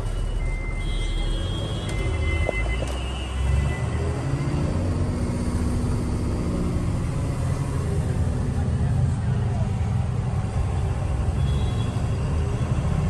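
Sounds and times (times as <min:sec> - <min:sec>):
road noise inside a cab: 0:00.0 - 0:13.0.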